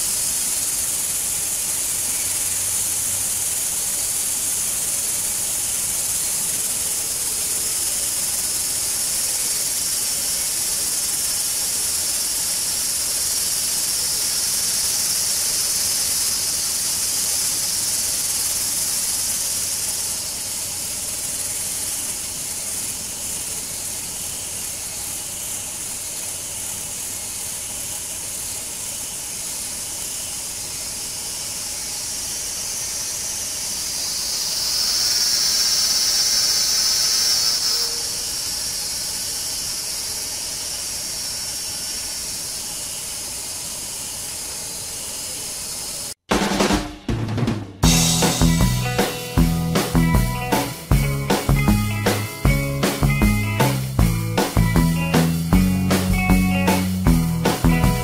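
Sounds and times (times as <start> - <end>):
high-pitched insect chorus: 0.0 - 46.3, 47.8 - 58.0
pitched buzz: 47.8 - 58.0.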